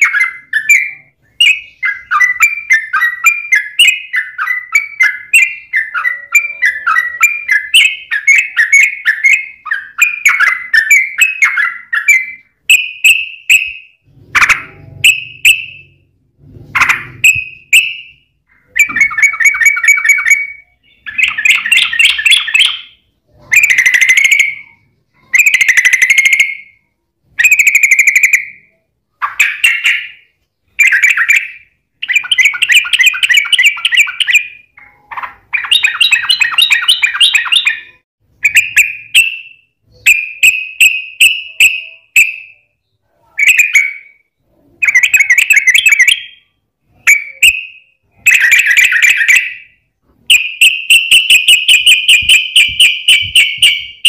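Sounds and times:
bird chattering calls: 16.7s - 26.6s, 27.4s - 39.4s, 50.3s - 54.0s.

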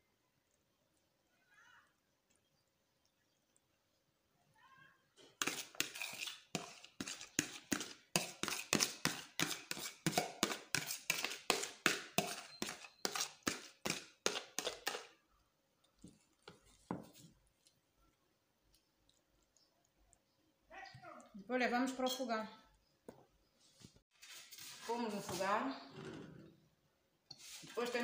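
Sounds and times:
spoon scraping plastic tub: 5.2s - 15.2s, 27.3s - 28.0s.

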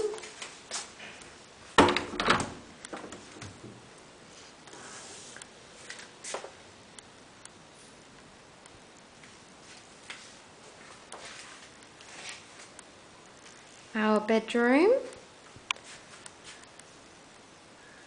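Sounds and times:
door rattle: 1.8s - 3.7s.

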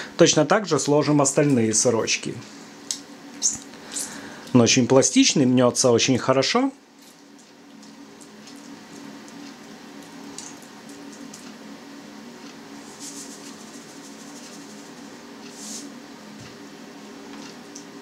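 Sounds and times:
faint steady hum: 0.0s - 18.0s
hands rubbing salt into cheese: 12.8s - 15.9s
salt shaker rattling: 12.9s - 15.0s.

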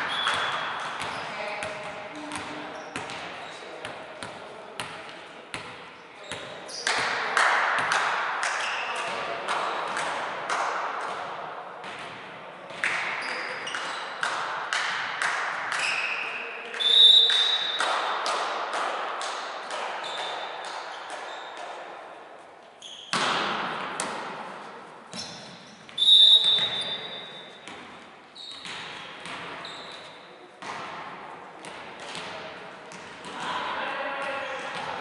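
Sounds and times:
volleyballs bouncing and struck: 0.0s - 22.0s, 22.9s - 35.0s
shrill whistle: 0.1s - 0.7s, 16.8s - 17.8s, 26.0s - 27.4s
players' voices: 31.7s - 35.0s.

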